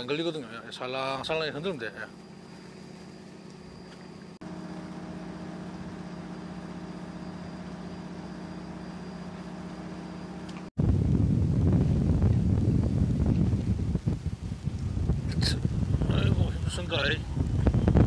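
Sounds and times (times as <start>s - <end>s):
boat engine idling: 0.9s - 10.7s
wind rumble on microphone: 10.8s - 18.0s.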